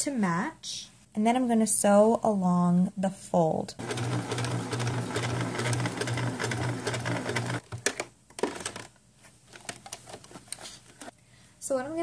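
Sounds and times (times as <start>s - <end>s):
sewing machine stitching: 3.8s - 8.9s.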